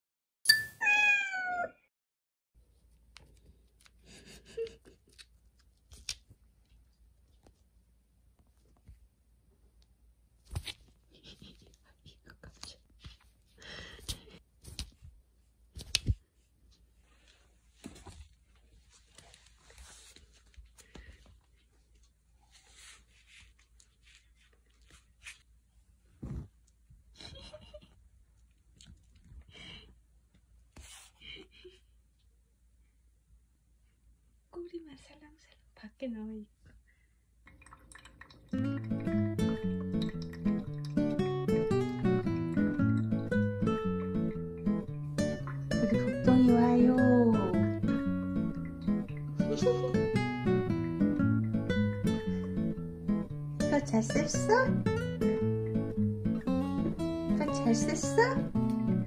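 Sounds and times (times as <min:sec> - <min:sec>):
cat meowing: 0:00.8 - 0:01.9
soft handling noises: 0:12.5 - 0:27.1
blanket rustling: 0:17.0 - 0:21.7.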